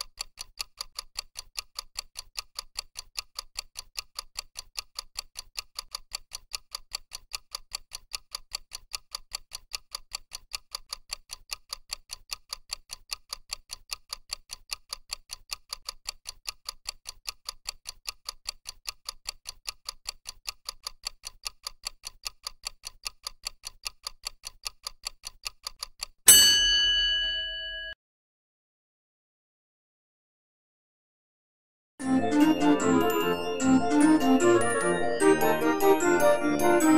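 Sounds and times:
clock ticking: 0.0s - 26.3s, 32.2s - 36.9s
loud chime: 26.3s - 28.0s.

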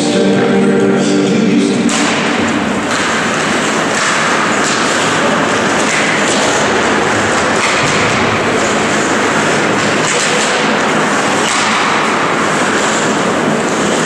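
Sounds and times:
echoing hall noise: 0.0s - 14.0s
skates scraping on ice: 2.8s - 14.0s
thud: 7.3s - 10.8s.

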